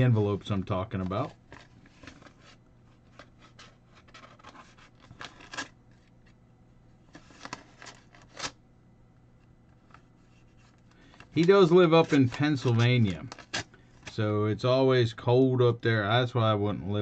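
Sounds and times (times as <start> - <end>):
paper scratching and rustling: 1.5 - 6.1, 11.4 - 13.6.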